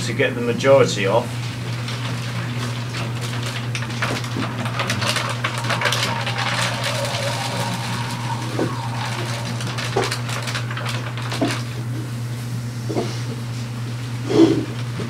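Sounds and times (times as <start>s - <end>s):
low potter's wheel hum: 2.9s - 11.5s.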